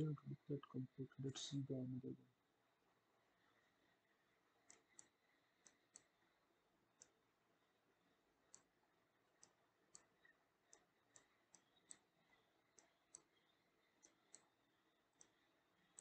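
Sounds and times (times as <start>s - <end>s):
computer mouse clicks: 4.6s - 7.2s, 8.4s - 16.0s.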